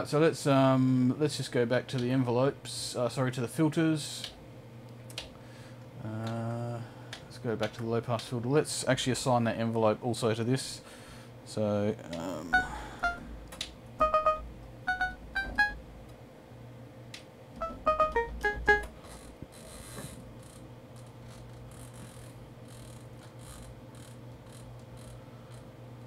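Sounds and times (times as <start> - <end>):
faint steady hum: 0.0 - 26.0
plucky synthesizer notes: 12.5 - 13.3, 14.0 - 15.8, 17.6 - 18.9.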